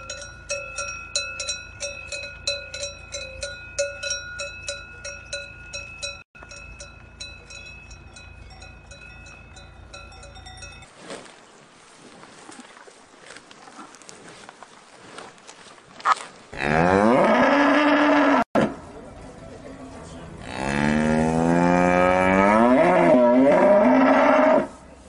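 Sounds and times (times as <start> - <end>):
cows mooing: 16.6 - 18.7, 20.4 - 24.7.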